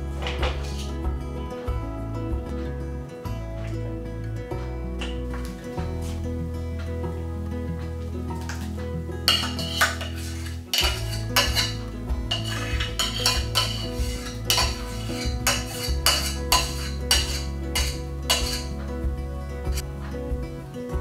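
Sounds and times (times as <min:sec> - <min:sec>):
metal spoon scraping saucepan: 0:09.3 - 0:18.9.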